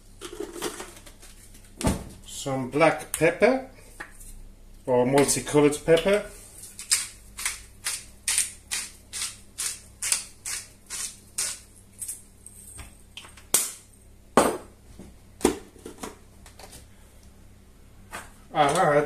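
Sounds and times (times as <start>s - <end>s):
pepper grinder crunching: 6.8s - 12.2s.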